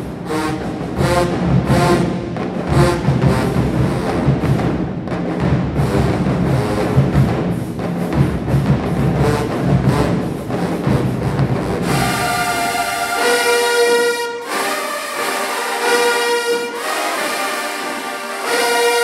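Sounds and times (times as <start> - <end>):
drumline cadence: 0.0 - 19.0
horns holding a chord: 10.8 - 19.0.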